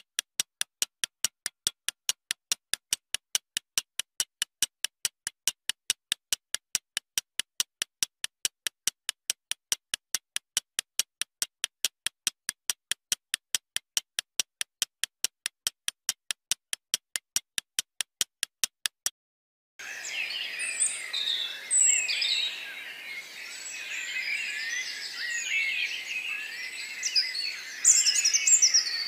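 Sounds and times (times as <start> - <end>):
chorus of birds singing: 19.8 - 29.0.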